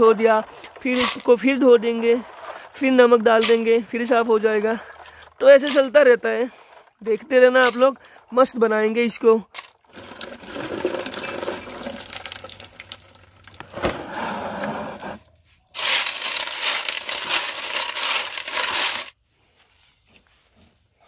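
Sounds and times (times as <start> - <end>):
snail shells rattling in metal bowl: 0.0 - 7.0, 15.8 - 19.1.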